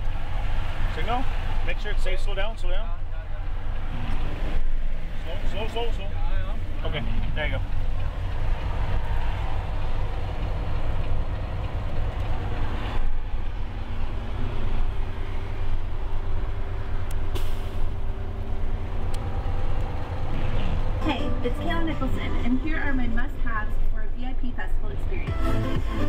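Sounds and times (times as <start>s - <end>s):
truck engine and road noise: 0.0s - 26.0s.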